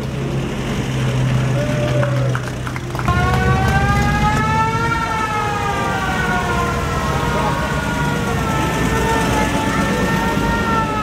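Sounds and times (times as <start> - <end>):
military vehicle engines running: 0.0 - 11.0
siren rising and falling: 3.1 - 11.0.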